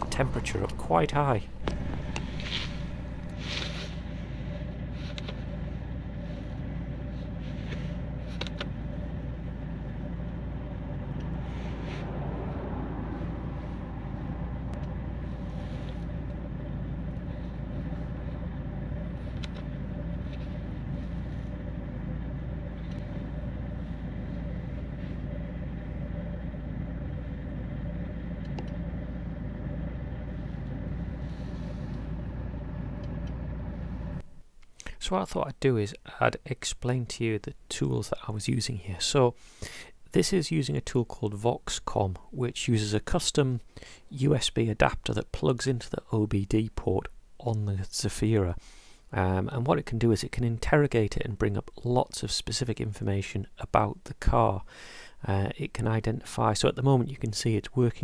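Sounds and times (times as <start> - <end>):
diesel engine running: 0.0 - 34.4.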